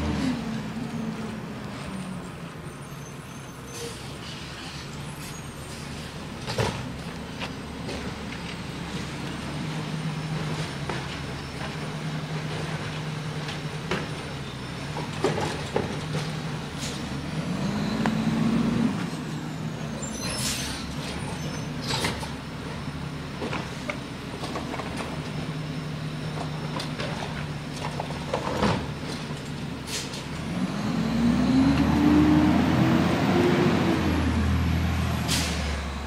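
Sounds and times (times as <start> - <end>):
garbage truck engine revving: 15.2 - 22.2, 30.3 - 36.0
air brake hiss: 29.9 - 30.2, 35.3 - 35.7.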